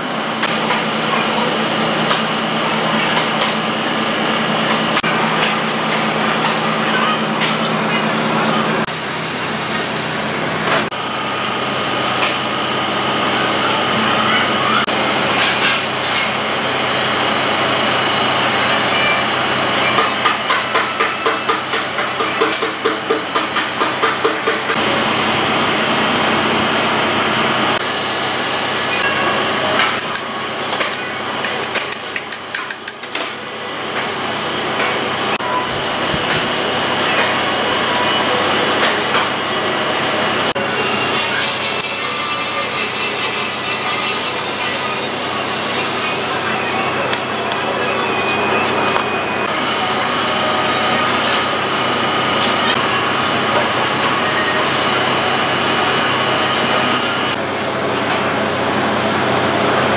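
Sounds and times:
steady workshop noise: 0:00.0 - 0:59.9.

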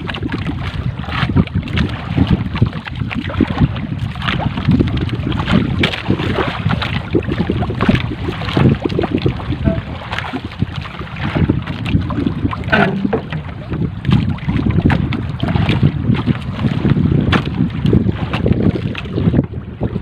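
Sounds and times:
water lapping at boat hull: 0:00.0 - 0:20.0
wind buffeting microphone: 0:00.0 - 0:20.0
fishing net knocks and rustles: 0:12.6 - 0:14.2, 0:17.3 - 0:17.6.

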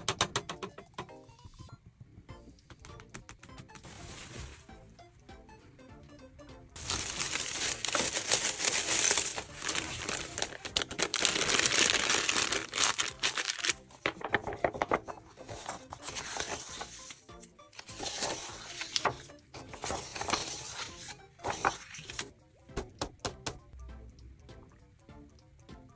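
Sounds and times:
plastic bag crinkling: 0:06.8 - 0:17.2.

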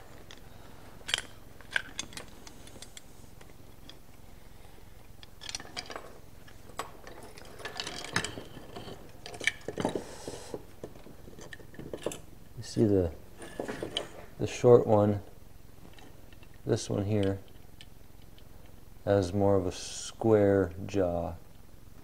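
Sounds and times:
metallic clicks and clinks: 0:00.1 - 0:04.1, 0:05.0 - 0:10.0.

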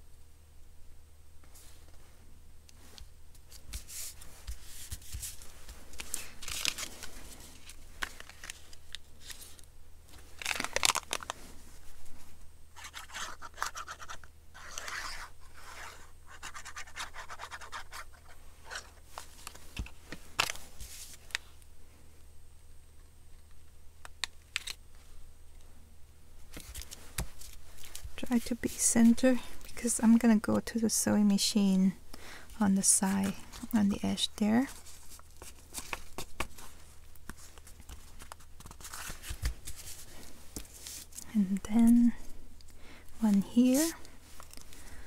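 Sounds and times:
paper rustling and scraping: 0:02.8 - 0:11.7, 0:12.8 - 0:21.4, 0:34.6 - 0:41.2, 0:43.5 - 0:44.7.

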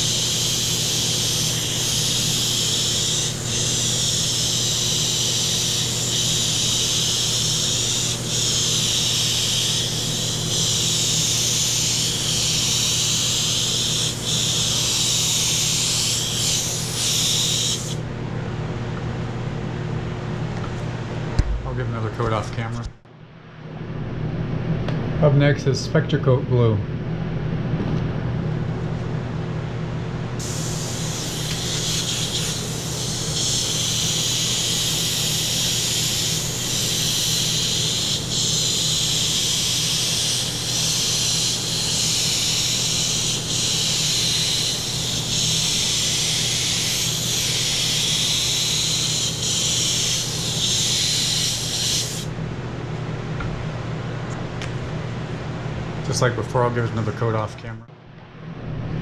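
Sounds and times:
airbrush spraying hiss: 0:00.0 - 0:18.0, 0:30.4 - 0:52.4
steady low hum: 0:00.0 - 0:59.0.

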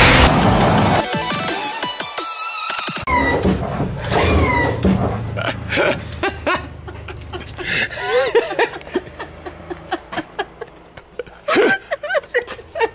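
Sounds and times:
woman giggling and laughing: 0:05.4 - 0:12.9.

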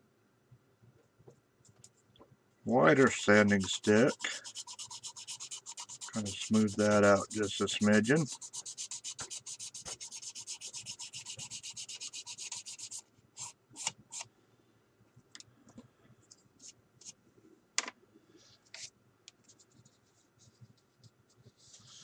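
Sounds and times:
sanding stick rubbing plastic: 0:02.9 - 0:13.9.

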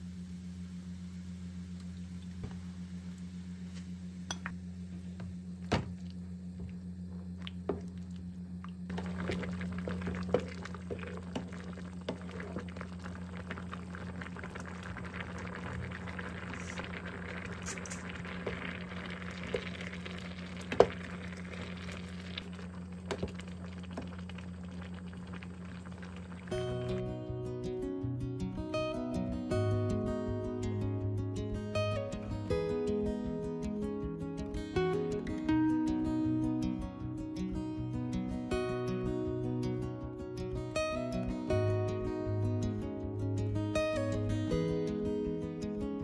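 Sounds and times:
low hum: 0:00.0 - 0:45.7
porridge bubbling and popping: 0:05.6 - 0:27.1.

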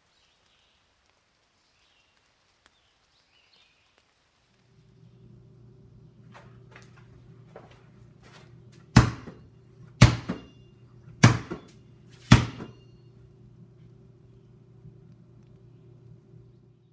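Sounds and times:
low steady hum: 0:04.4 - 0:16.9
basketball bouncing: 0:08.9 - 0:09.4, 0:10.0 - 0:10.6, 0:11.2 - 0:12.8.

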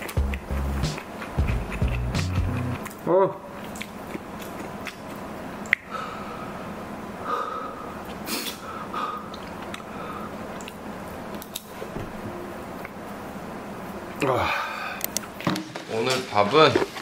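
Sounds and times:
breathy exhales: 0:05.9 - 0:10.4
man sniffing and gasping: 0:07.3 - 0:09.4.

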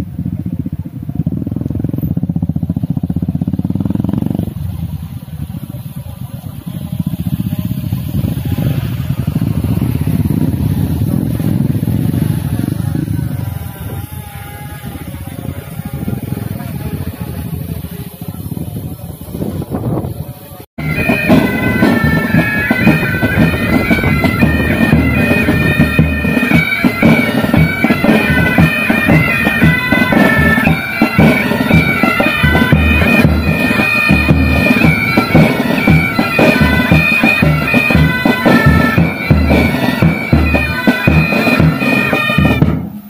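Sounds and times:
bagpipes melody with drones: 0:06.1 - 0:18.3, 0:20.8 - 0:43.0
bass drum beating: 0:20.8 - 0:43.0
snare drums: 0:20.8 - 0:43.0.

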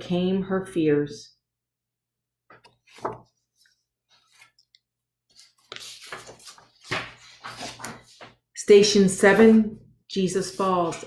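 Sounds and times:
paper sheets rustling: 0:02.6 - 0:04.7, 0:05.3 - 0:08.4, 0:10.4 - 0:11.0.

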